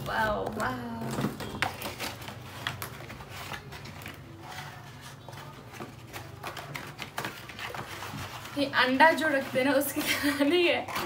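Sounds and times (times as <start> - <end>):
cardboard packaging rustling: 0.0 - 11.0.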